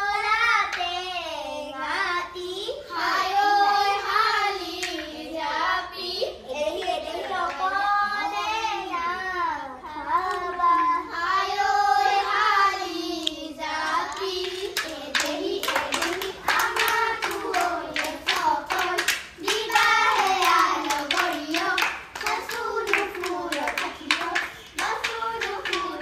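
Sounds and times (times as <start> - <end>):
child singing: 0.0 - 26.0
rapid hand claps: 4.7 - 5.2, 13.2 - 26.0.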